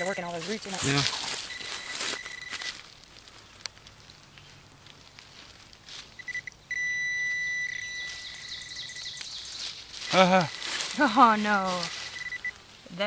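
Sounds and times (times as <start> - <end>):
pinpointer beeping: 1.4 - 2.8, 6.2 - 9.3, 10.1 - 12.6.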